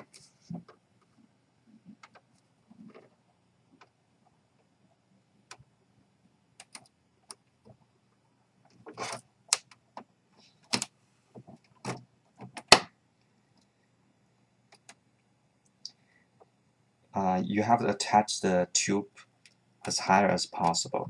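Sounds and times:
fingers handling tape and tubes: 8.6s - 12.9s.

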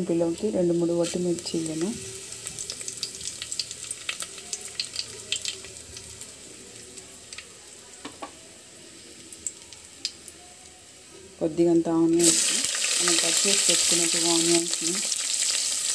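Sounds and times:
seeds sizzling in hot oil: 0.0s - 15.9s
seeds crackling and popping: 0.1s - 8.4s, 12.1s - 15.9s.

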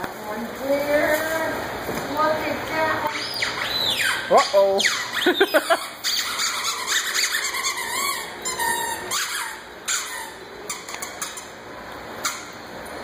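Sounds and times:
squeaky dog toy squeaking: 3.2s - 11.5s.

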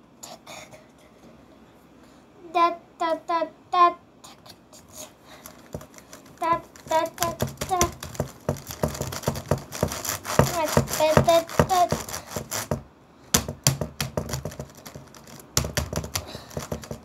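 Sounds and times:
child's voice: 2.4s - 5.2s, 6.3s - 8.0s, 10.4s - 12.2s
hands handling objects clattering: 5.4s - 12.8s, 13.4s - 17.0s.

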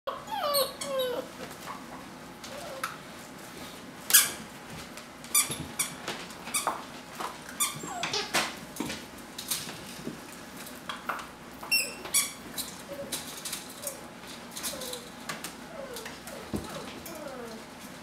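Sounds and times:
puppies squeaking and whining: 0.1s - 1.4s, 2.5s - 2.9s, 7.5s - 8.4s, 11.6s - 13.2s, 13.8s - 15.1s, 15.7s - 17.7s.

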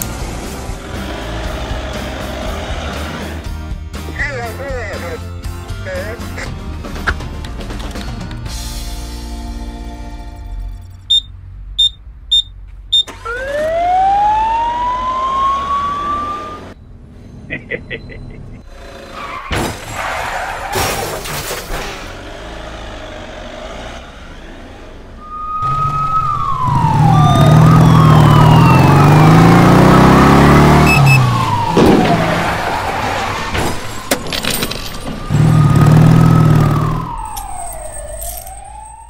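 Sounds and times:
motorcycle engine revving: 0.0s - 3.5s, 22.0s - 32.2s, 35.2s - 37.2s
police siren wailing: 13.1s - 16.8s, 25.2s - 39.0s.

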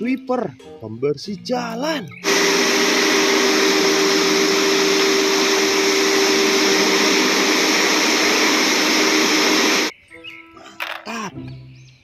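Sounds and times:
street sweeper running: 2.2s - 9.9s.

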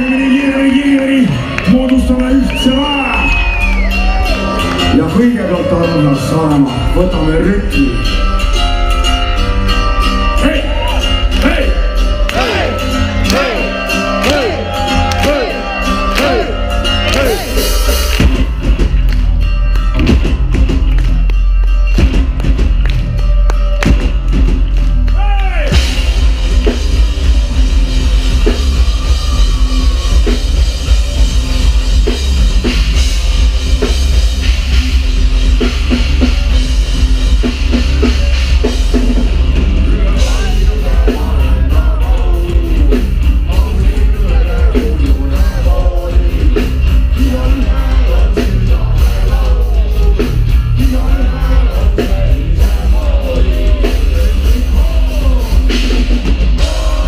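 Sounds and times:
drum kit: 6.6s - 57.0s
person singing: 39.8s - 57.0s.

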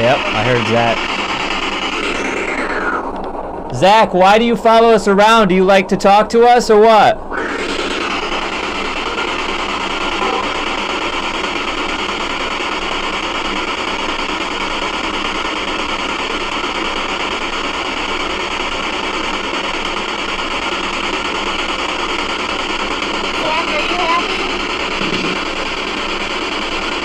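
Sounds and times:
radio static hiss: 0.0s - 3.1s, 7.3s - 27.0s.

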